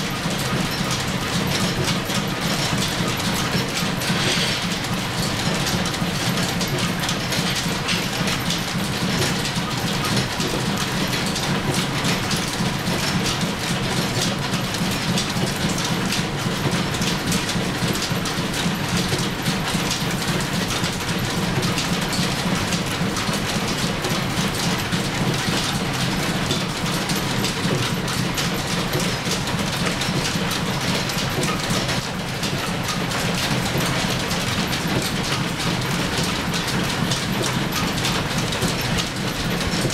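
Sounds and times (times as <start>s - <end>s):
gears and drive belt rattling: 0.0s - 39.9s
metal lathe running: 0.1s - 39.9s.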